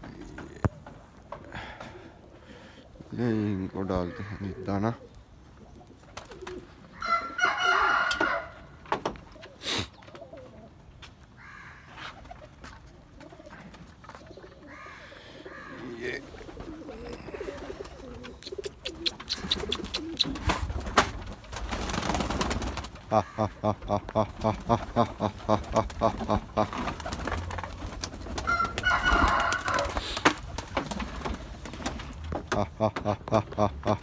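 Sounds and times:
pigeons cooing: 0:00.0 - 0:34.0
rustle: 0:05.0 - 0:22.9.

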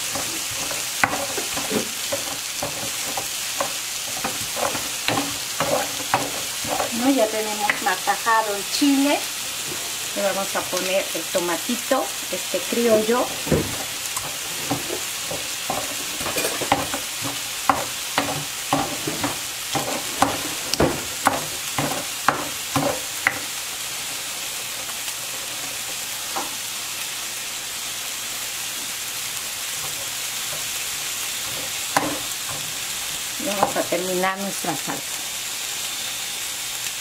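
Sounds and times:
meat sizzling in a pan: 0:00.0 - 0:37.0
stone pestle knocking and grinding: 0:00.1 - 0:06.9, 0:13.4 - 0:23.4, 0:31.4 - 0:32.9.

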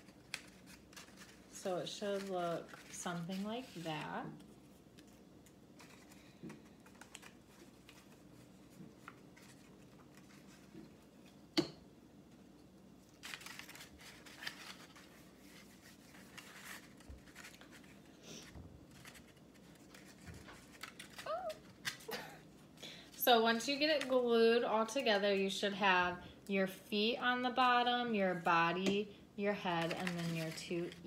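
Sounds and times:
paper rustling and scraping: 0:00.0 - 0:05.2, 0:05.8 - 0:11.3, 0:13.1 - 0:22.1, 0:29.6 - 0:31.0.

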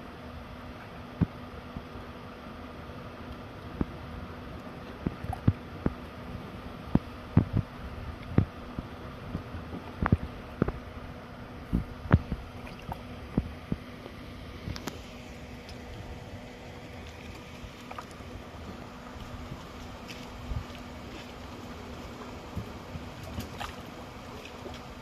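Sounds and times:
steady low hum: 0:00.0 - 0:25.0
water slapping against boat hull: 0:04.9 - 0:06.1, 0:11.6 - 0:16.1, 0:16.9 - 0:25.0.

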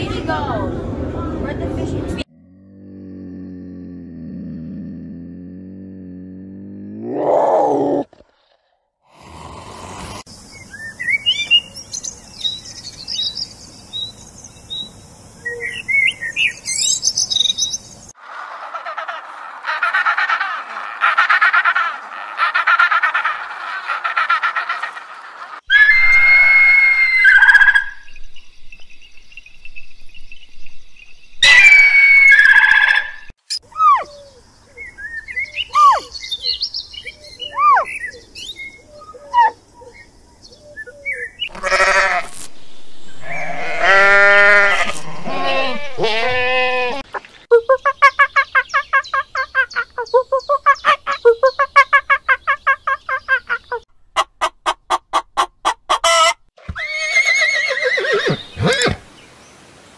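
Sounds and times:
loud pitched animal calls: 0:18.2 - 0:28.0, 0:41.5 - 0:42.4, 0:43.1 - 0:47.0.

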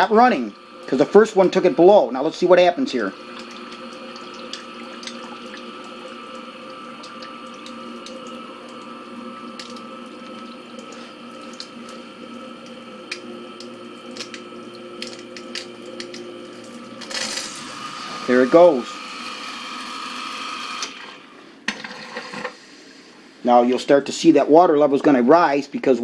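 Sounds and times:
sump pump humming: 0:00.0 - 0:21.4
water trickling and dripping: 0:03.3 - 0:16.1.

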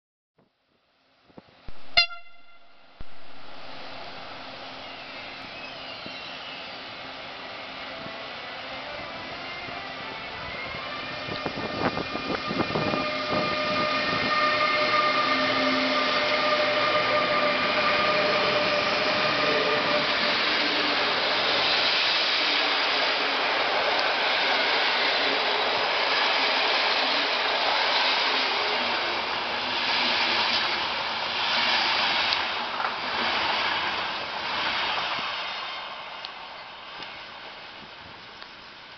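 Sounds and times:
locomotive whine: 0:01.7 - 0:31.0.

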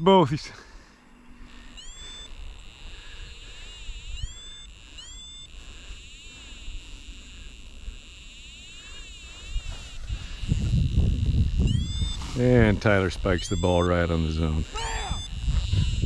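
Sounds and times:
high-pitched insect chorus: 0:00.0 - 0:16.0
short rising calls: 0:00.0 - 0:16.0
low wind rumble: 0:09.4 - 0:16.0.

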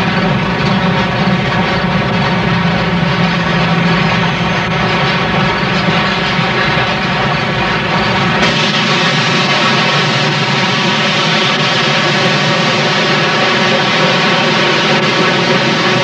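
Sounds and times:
steam locomotive rumble: 0:00.0 - 0:16.0
steam hiss: 0:07.8 - 0:16.0.

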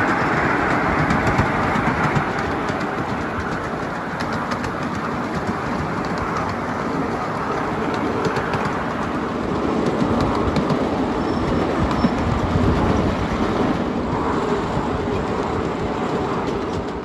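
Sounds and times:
train wheels rumbling on rails: 0:00.0 - 0:17.0
sharp clicks: 0:00.1 - 0:06.8.

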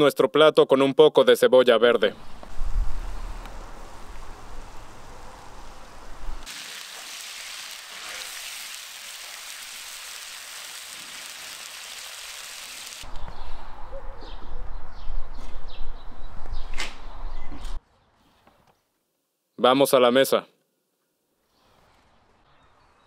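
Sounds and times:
wind rumble on microphone: 0:02.3 - 0:06.4
food sizzling in a pan: 0:06.4 - 0:13.1.

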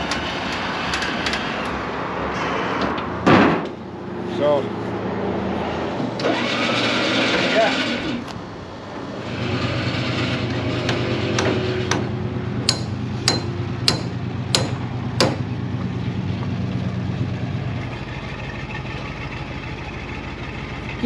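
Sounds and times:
truck engine running: 0:06.1 - 0:21.0
sharp knocks: 0:10.9 - 0:15.5.

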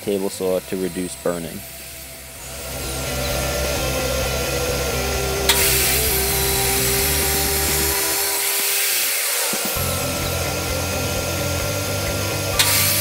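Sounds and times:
table saw cutting wood: 0:00.8 - 0:13.0
sharp click: 0:12.6 - 0:13.0.

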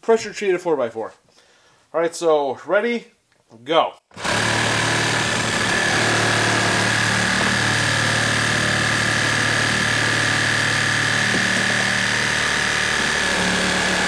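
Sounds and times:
reciprocating saw cutting wood: 0:04.1 - 0:14.0.

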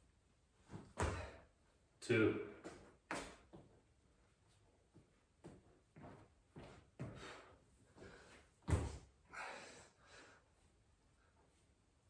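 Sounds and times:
body thudding onto floor: 0:00.7 - 0:01.4, 0:08.6 - 0:09.1
breathing: 0:07.0 - 0:08.5, 0:09.3 - 0:10.6.

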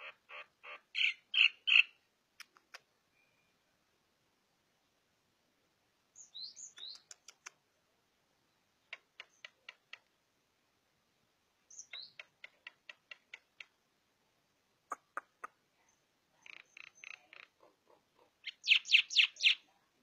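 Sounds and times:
bird sharp clicks: 0:02.4 - 0:02.9, 0:06.5 - 0:07.6, 0:08.9 - 0:10.1, 0:14.9 - 0:15.6.

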